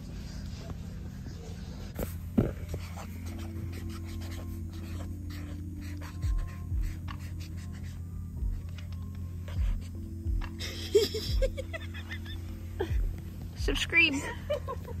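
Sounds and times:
background music: 0:00.0 - 0:15.0
marker scratching on paper: 0:00.2 - 0:10.6
low beats: 0:08.4 - 0:15.0.

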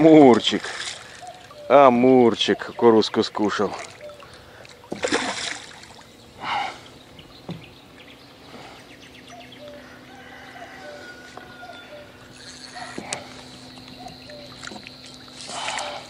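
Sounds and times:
fish splashing at water surface: 0:03.7 - 0:06.1, 0:12.3 - 0:16.0.

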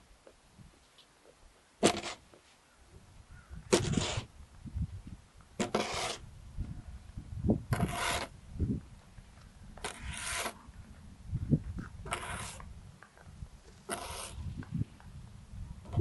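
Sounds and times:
snow shovel scraping ice: 0:01.8 - 0:02.2, 0:03.7 - 0:04.3, 0:05.6 - 0:06.2, 0:07.7 - 0:08.3, 0:09.8 - 0:10.6, 0:12.0 - 0:12.6, 0:13.8 - 0:14.5.

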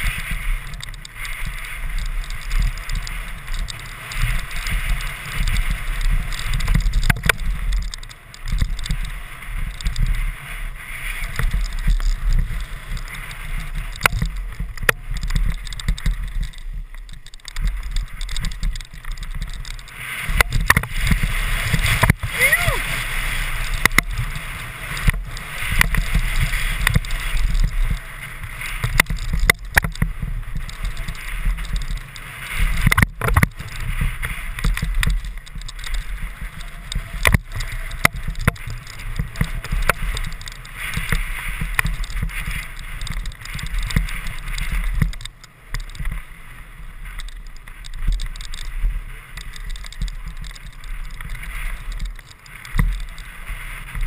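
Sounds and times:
bike knocks and rattles: 0:00.0 - 0:46.3, 0:47.0 - 0:54.0
wind rumbling on microphone: 0:00.0 - 0:54.0.

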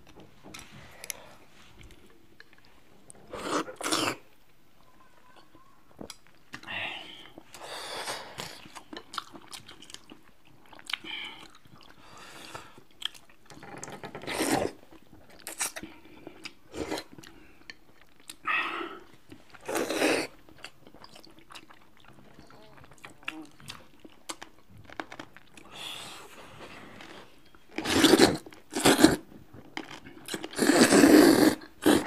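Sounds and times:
close chewing of noodles: 0:07.4 - 0:13.5, 0:14.1 - 0:26.4, 0:27.7 - 0:32.0.

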